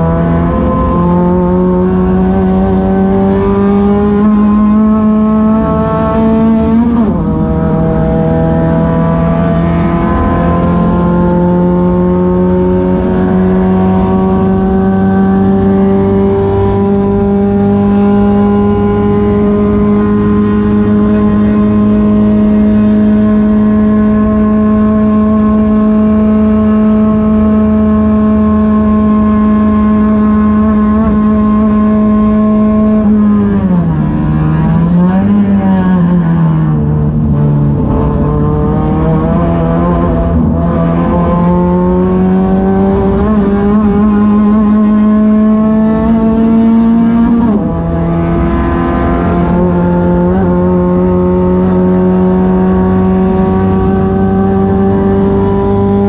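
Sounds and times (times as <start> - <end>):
race car engine at high revs: 0.0 - 56.0.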